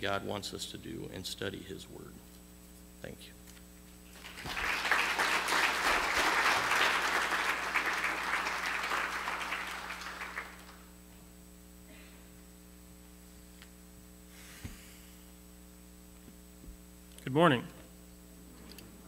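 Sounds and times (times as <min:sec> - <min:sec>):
steady electrical hum: 0:00.0 - 0:19.0
congregation applauding: 0:04.1 - 0:11.0.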